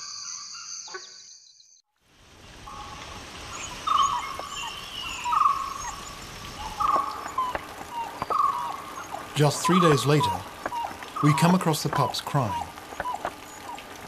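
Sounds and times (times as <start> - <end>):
crickets chirping: 0.0 - 1.7, 2.5 - 13.7
steady hiss: 2.1 - 14.0
dhole pup whistling call: 6.8 - 11.7, 12.3 - 13.8.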